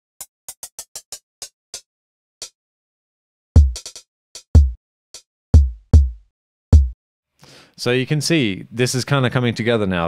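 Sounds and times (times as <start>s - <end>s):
deep kick drum: 3.6s - 3.8s, 4.6s - 4.8s, 5.6s - 6.2s, 6.8s - 7.0s.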